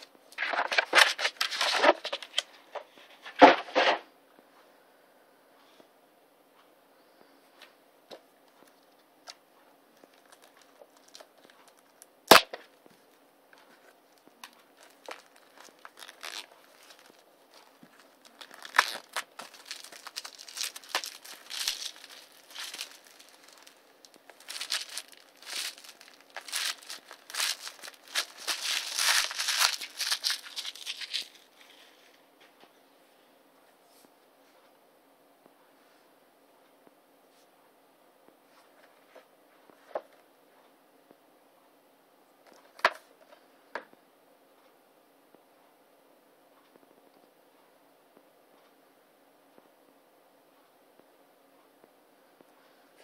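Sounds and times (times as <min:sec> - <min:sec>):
plastic wrap crinkling and tearing: 0:00.0 - 0:04.0, 0:10.0 - 0:12.7, 0:13.8 - 0:32.1.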